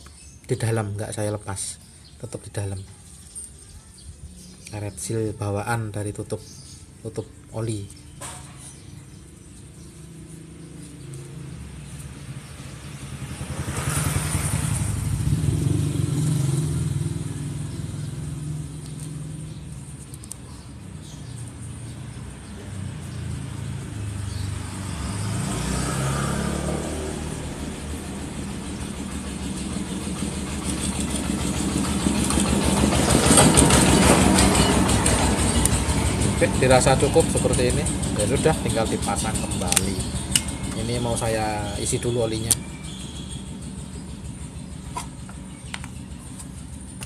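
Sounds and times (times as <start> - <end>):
motorcycle engine running: 9.8 - 21.0, 21.8 - 47.0.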